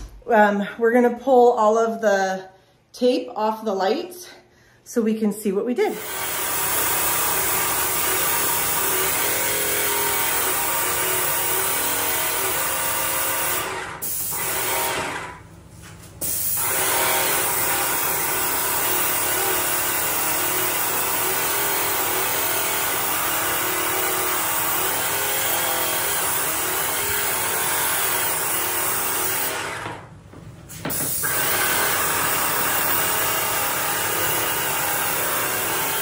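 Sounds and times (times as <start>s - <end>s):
paint sprayer hissing: 14.0s - 14.4s, 16.2s - 16.6s, 30.7s - 31.4s
sprayer pump running: 30.9s - 36.0s.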